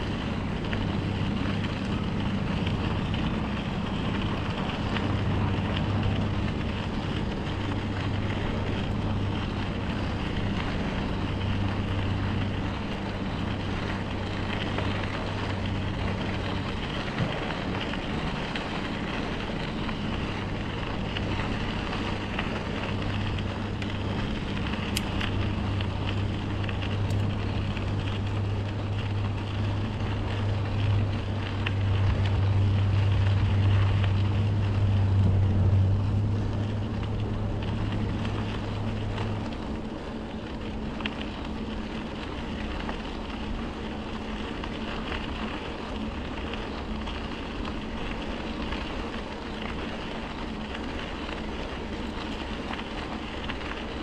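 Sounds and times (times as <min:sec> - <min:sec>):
wind on microphone: 0:00.0 - 0:39.5
bicycle tyres rolling: 0:00.0 - 0:54.0
steady low hum: 0:00.0 - 0:54.0.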